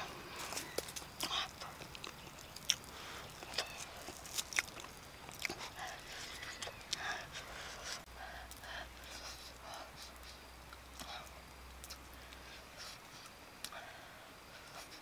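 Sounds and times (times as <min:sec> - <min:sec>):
person chewing with wet mouth clicks: 0:01.0 - 0:07.1, 0:10.7 - 0:12.4.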